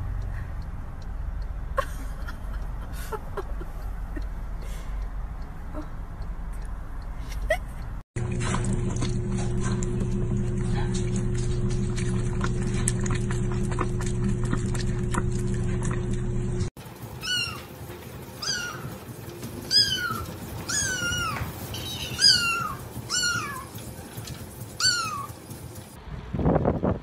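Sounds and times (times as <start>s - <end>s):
steady hum: 8.2s - 17.1s
kitten meowing: 17.2s - 17.7s, 18.4s - 18.8s, 19.7s - 21.4s, 22.2s - 23.7s.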